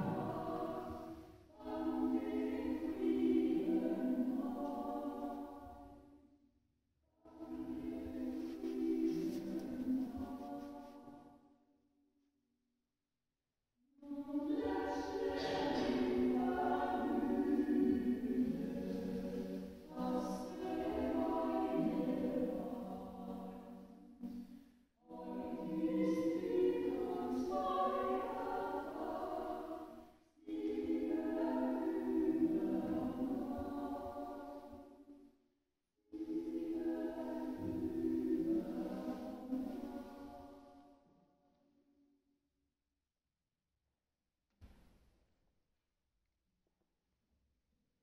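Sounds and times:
choir singing: 0.0 - 6.1, 7.3 - 11.2, 14.0 - 24.4, 25.0 - 35.0, 36.2 - 41.0.

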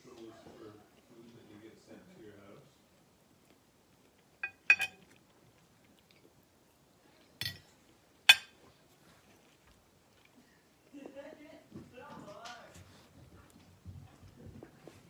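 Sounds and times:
knife and fork clinking on plate: 4.4 - 5.2, 7.4 - 7.7, 8.3 - 8.6.

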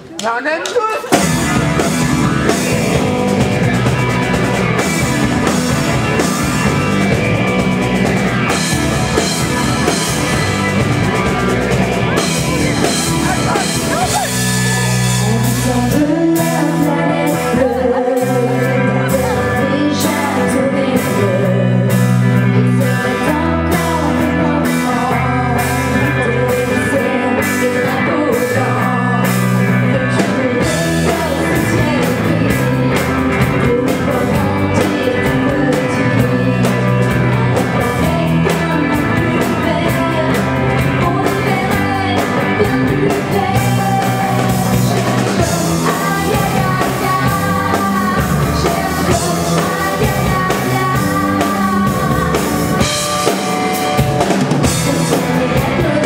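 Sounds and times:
drum kit: 0.0 - 56.0
electric guitar: 0.0 - 56.0
rock band playing: 0.0 - 56.0
woman singing: 12.1 - 56.0.

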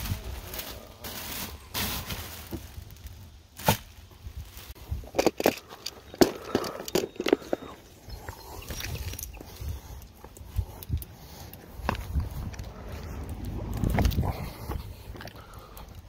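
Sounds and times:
plastic bag crinkling: 0.0 - 7.8.

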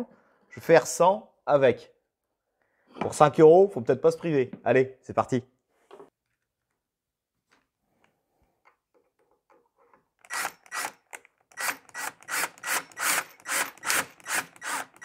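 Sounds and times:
screw grinding into plywood: 10.2 - 15.0.

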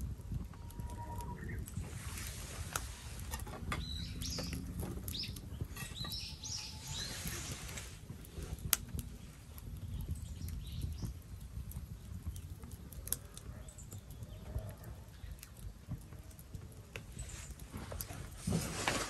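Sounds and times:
steady low rumble: 0.0 - 17.9
small birds chirping: 3.3 - 17.7.

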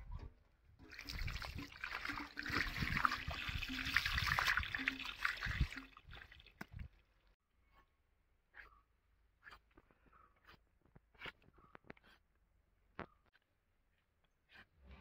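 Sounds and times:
water pouring and splashing: 0.8 - 7.0.

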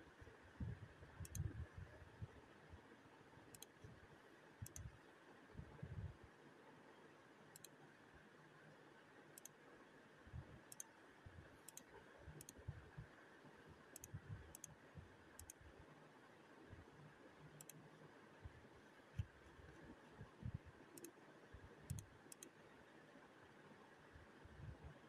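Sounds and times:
faint room hiss: 0.0 - 25.0
faint sharp clicks: 1.2 - 1.5, 3.5 - 3.9, 4.6 - 5.0, 7.5 - 7.8, 9.3 - 9.6, 11.6 - 12.6, 17.6 - 17.8, 21.0 - 21.2, 21.9 - 22.6.

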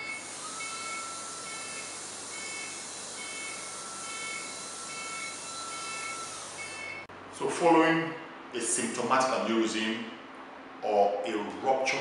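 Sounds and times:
high-speed drill whine: 0.0 - 7.1.

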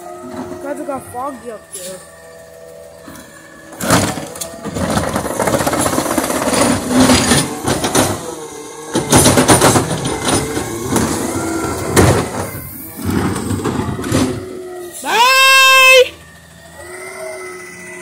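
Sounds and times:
trash carts rattling and clattering: 0.0 - 16.7
truck engine: 0.0 - 18.0
sharp bangs of carts tipping: 3.7 - 14.6.

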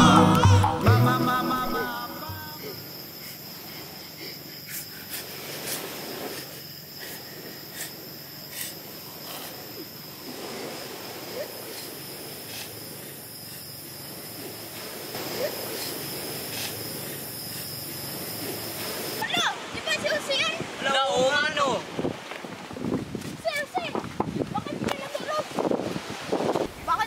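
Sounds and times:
music: 0.0 - 2.6
crickets chirring: 0.1 - 27.0.

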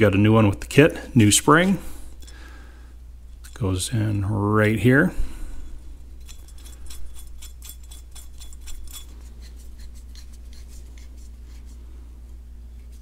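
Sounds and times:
steady low hum: 0.0 - 13.0
small metallic ticks and scrapes: 6.2 - 11.1.

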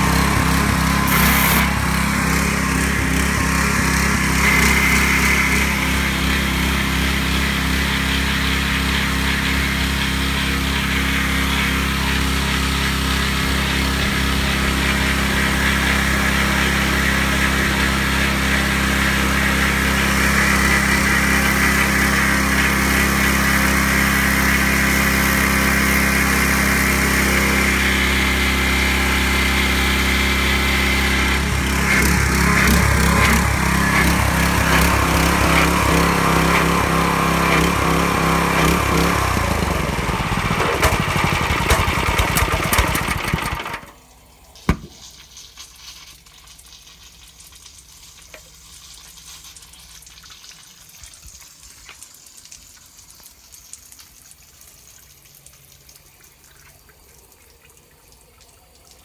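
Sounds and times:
pressure washer engine running: 0.0 - 45.9
water trickling and dripping: 44.2 - 59.0.

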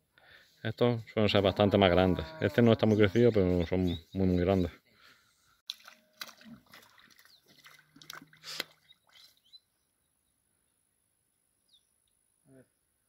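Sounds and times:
bird chirps: 2.3 - 4.8, 8.4 - 10.8
water sloshing: 5.7 - 9.5.

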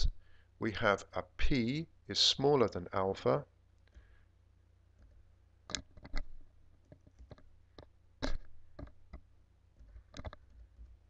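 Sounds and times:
low steady hum: 0.0 - 11.0
keyboard and mouse clicks: 5.0 - 11.0.

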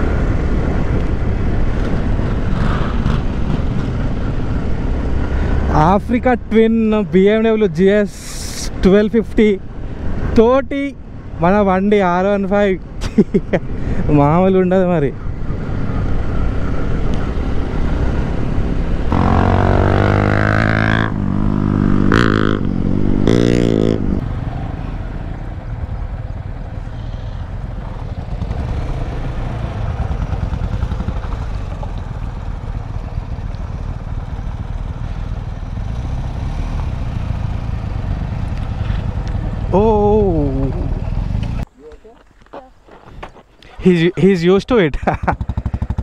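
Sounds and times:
motorcycle engine revving: 1.4 - 5.8, 15.5 - 41.7, 45.1 - 46.0.

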